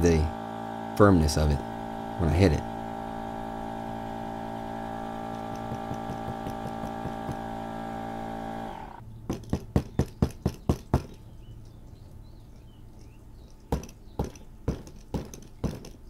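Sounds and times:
electric air pump humming: 0.0 - 9.0
hand tapping inflatable tube: 5.3 - 7.5.

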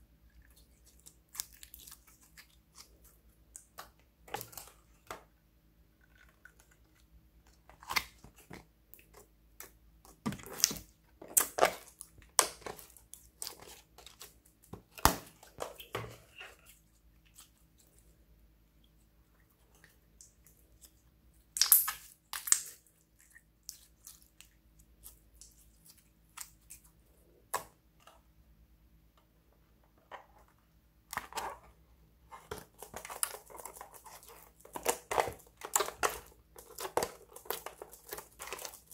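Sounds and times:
slime squelching with wet pops: 19.7 - 26.9.

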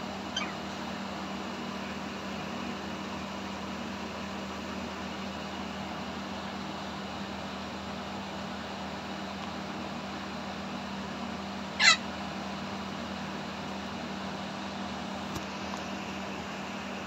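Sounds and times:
background hum: 0.0 - 17.0
parakeet squawk: 0.3 - 0.7, 11.8 - 12.1.

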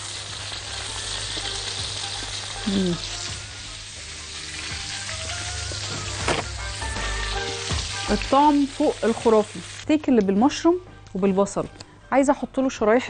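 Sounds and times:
broth sizzling in a frying pan: 0.0 - 9.9.

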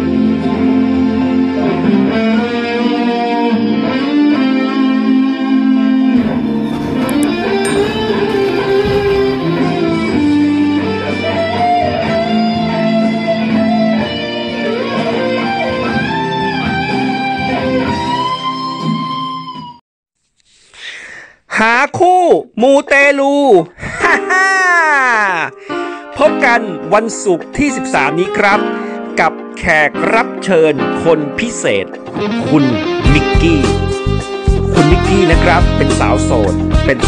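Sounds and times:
electric guitar lead melody: 0.0 - 19.8, 28.1 - 37.0.

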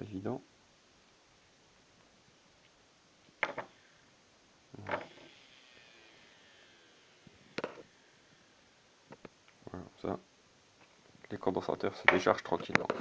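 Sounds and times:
small motor whine: 3.6 - 4.2, 4.8 - 9.3.

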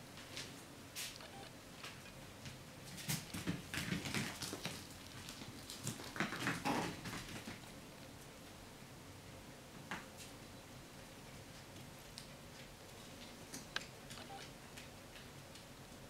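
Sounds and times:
puppies scuffling on wooden floor: 1.8 - 7.7
puppy growls: 6.0 - 7.2.

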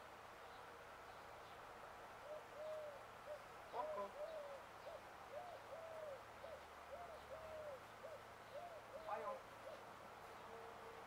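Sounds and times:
dove cooing: 2.2 - 10.0.

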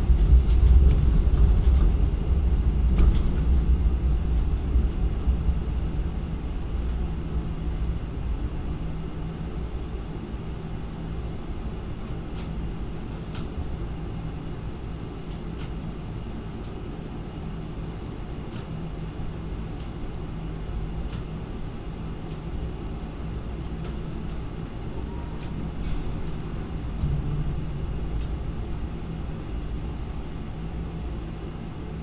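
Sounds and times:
crane machinery rumble and hum: 0.0 - 32.0.

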